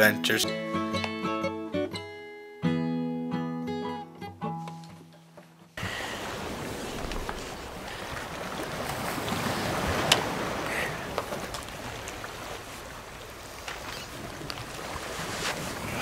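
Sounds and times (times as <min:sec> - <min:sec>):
guitar notes: 0:00.0 - 0:05.2
wind and surf: 0:05.8 - 0:16.0.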